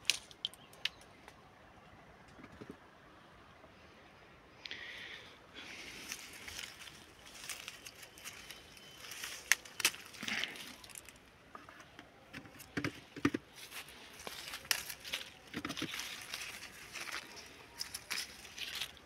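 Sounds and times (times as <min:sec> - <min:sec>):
leaves and twigs rustling: 0:00.0 - 0:01.4, 0:04.8 - 0:19.0.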